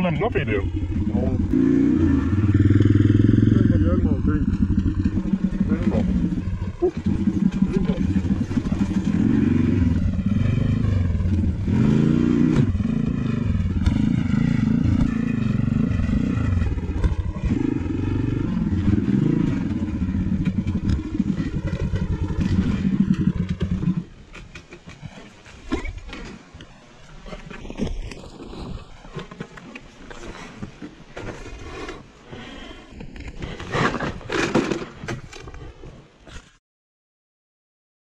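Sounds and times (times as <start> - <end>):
small engine revving: 0.2 - 24.2.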